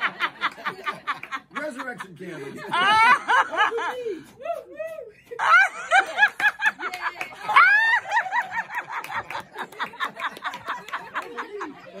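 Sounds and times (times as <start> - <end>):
group laughing hard: 0.0 - 4.4, 5.3 - 12.0
high-pitched laugh: 2.6 - 12.0.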